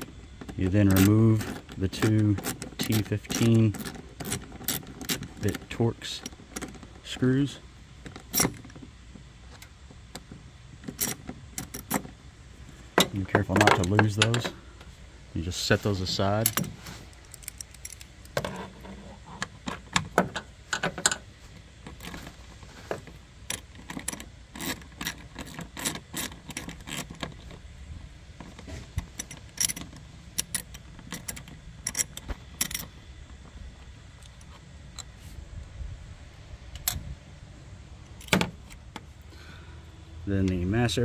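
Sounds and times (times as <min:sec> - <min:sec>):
low background noise: 0:00.0 - 0:41.0
small metal parts clinking: 0:00.4 - 0:06.9, 0:16.2 - 0:18.8, 0:23.4 - 0:27.5, 0:29.0 - 0:33.0.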